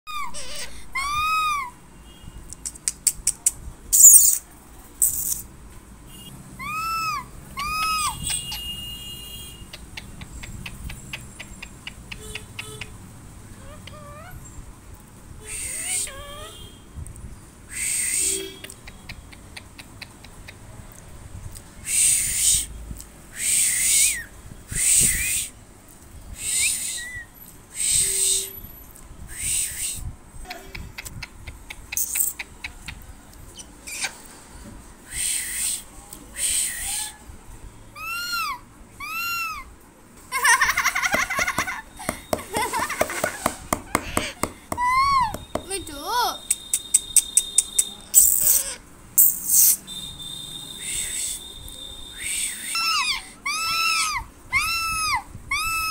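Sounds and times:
parakeet whistled calls: 0:04.0 - 0:04.4, 0:26.4 - 0:28.5, 0:46.4 - 0:55.9
parakeet sharp clicks: 0:09.7 - 0:13.0, 0:46.4 - 0:48.6
parakeet raspy hissing calls: 0:17.7 - 0:18.4, 0:21.8 - 0:22.7, 0:23.4 - 0:24.2, 0:27.7 - 0:28.5, 0:35.1 - 0:37.2, 0:48.2 - 0:49.9
parakeet harsh screeches: 0:38.0 - 0:39.7, 0:48.2 - 0:49.8, 0:52.5 - 0:55.9.

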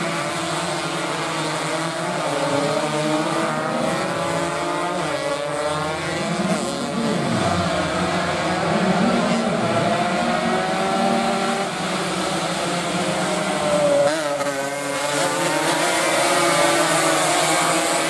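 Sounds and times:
racing motorcycle engines revving: 0:00.0 - 0:18.0.

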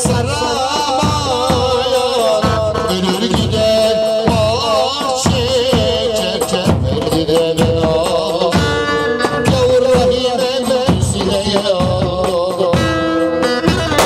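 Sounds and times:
steady drum beat: 0:00.0 - 0:14.0
folk dance melody: 0:07.9 - 0:14.0.

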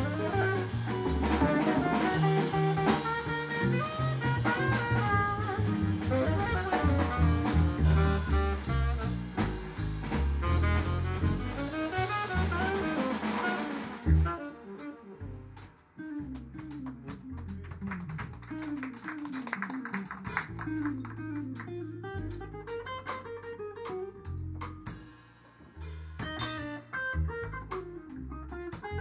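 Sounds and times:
tenor saxophone: 0:00.0 - 0:16.2, 0:20.2 - 0:24.4
jazz band playing: 0:00.0 - 0:29.0.

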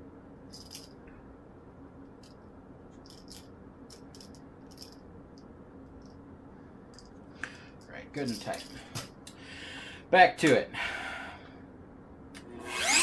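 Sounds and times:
faint steady hum: 0:00.0 - 0:13.0
small metal parts clicking: 0:02.2 - 0:05.0, 0:08.2 - 0:09.1.

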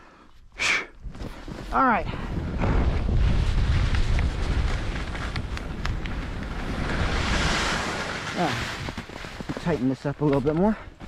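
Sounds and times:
wind rushing over microphone: 0:01.0 - 0:09.6
skis scraping over snow: 0:01.3 - 0:10.7
skis skidding across snow: 0:01.3 - 0:10.7.

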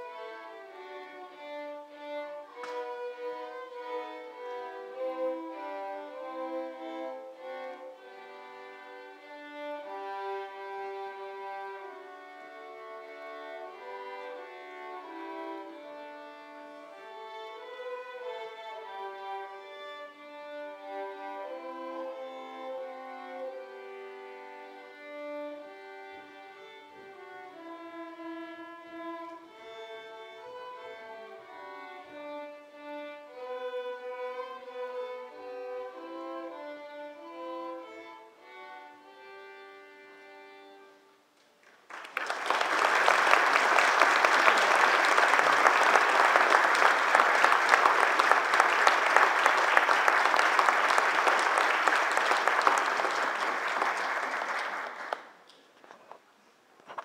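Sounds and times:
string orchestra held notes: 0:00.0 - 0:41.2, 0:42.1 - 0:55.4
audience applause: 0:41.6 - 0:55.4.

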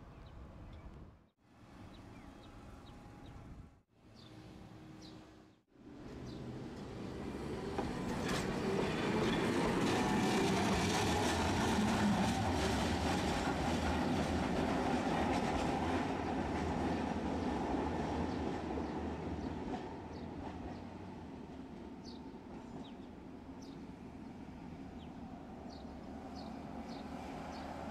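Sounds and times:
streetcar rolling past: 0:05.8 - 0:27.9.

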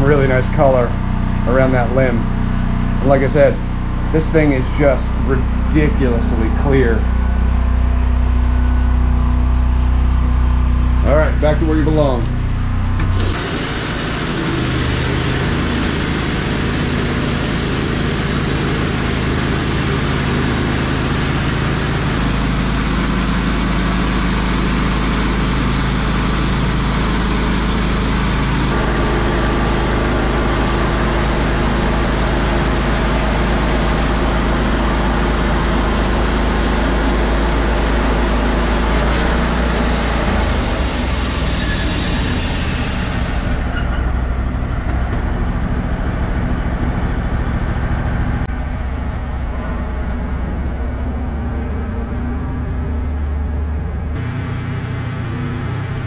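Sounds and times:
bandsaw mill sawing log: 0:00.0 - 0:07.2, 0:13.0 - 0:44.2.

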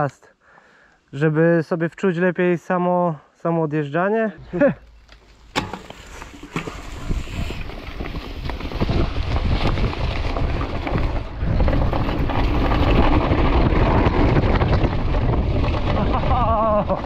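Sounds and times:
bike tyres rolling on dirt: 0:04.4 - 0:17.0
bike clattering over bumps: 0:04.5 - 0:17.0
wind buffeting microphone: 0:06.1 - 0:17.0.

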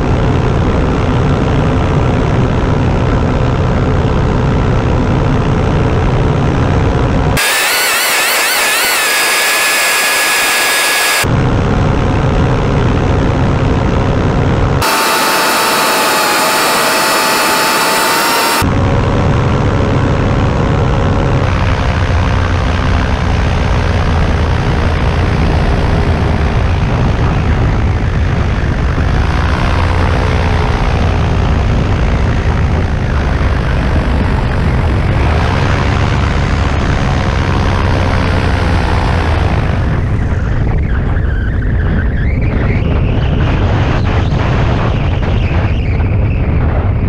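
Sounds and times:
two-stroke engine and propeller: 0:00.0 - 0:47.0.

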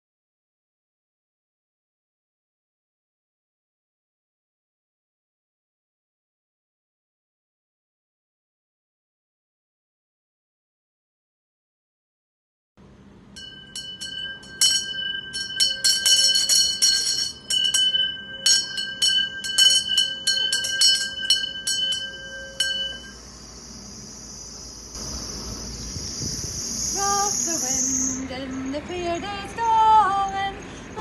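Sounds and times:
steady high ringing: 0:13.3 - 0:31.0
small bell ringing: 0:13.4 - 0:25.0.

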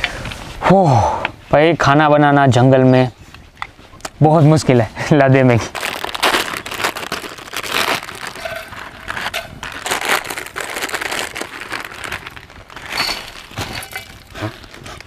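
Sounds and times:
plastic packets crinkling: 0:05.6 - 0:15.0.

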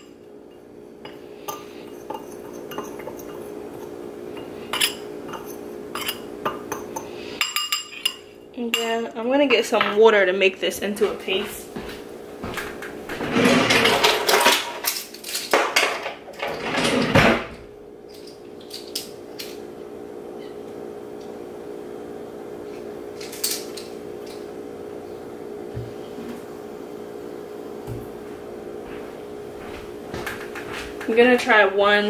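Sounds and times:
steady hum: 0:00.0 - 0:32.0
dishes and utensils knocking: 0:01.1 - 0:03.5, 0:04.4 - 0:08.2.

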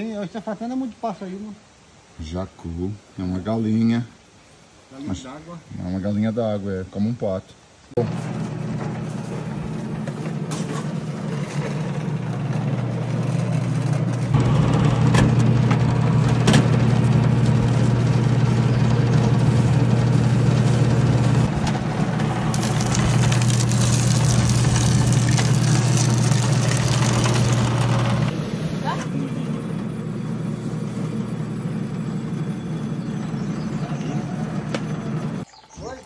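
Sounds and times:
juice press motor hum: 0:08.0 - 0:35.4.

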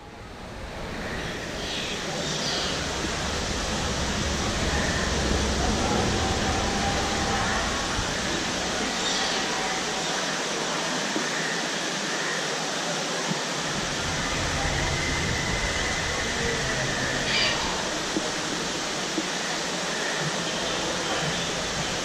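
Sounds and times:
water rushing over rocks: 0:00.1 - 0:22.0.

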